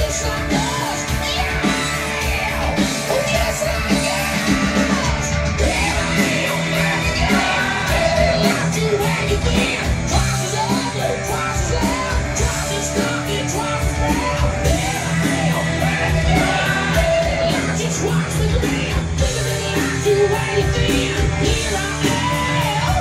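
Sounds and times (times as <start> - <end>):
rock song with singing: 0.0 - 23.0.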